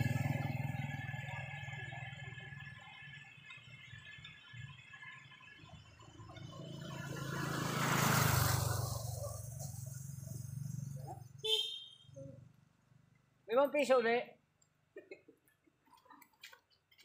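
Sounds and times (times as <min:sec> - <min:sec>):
vehicle passing by: 0:00.0 - 0:04.0, 0:04.8 - 0:11.4.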